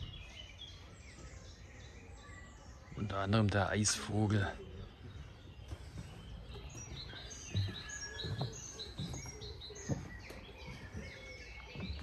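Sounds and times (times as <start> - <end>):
songbirds chirping and singing: 0.0 - 12.0
low thuds: 5.0 - 12.0.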